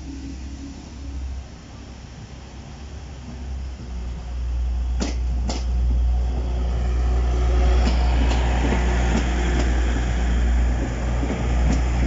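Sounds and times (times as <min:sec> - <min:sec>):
train engine rumble: 0:00.0 - 0:12.0
train wheels clicking on rail joints: 0:03.1 - 0:12.0.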